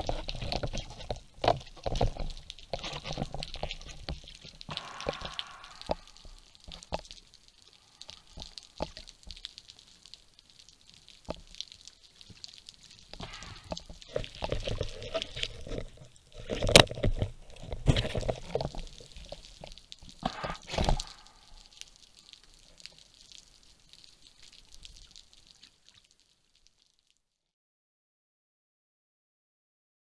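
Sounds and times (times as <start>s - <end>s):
underwater knocks and clicks: 0.0s - 7.2s, 8.0s - 9.6s, 12.2s - 21.3s
faint steady hiss: 0.0s - 27.5s.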